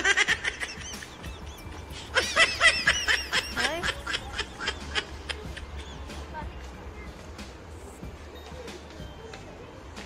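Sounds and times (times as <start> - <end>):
woman giggling: 0.0 - 6.0.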